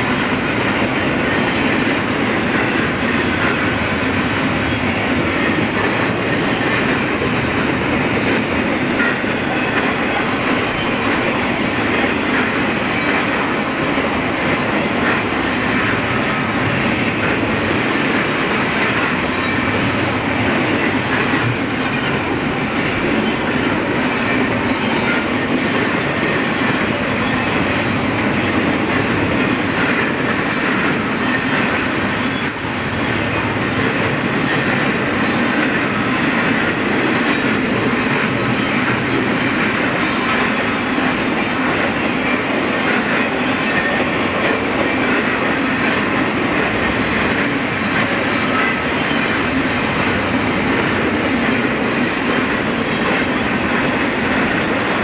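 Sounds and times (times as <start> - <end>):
freight train wheels on rails: 0.0 - 55.0.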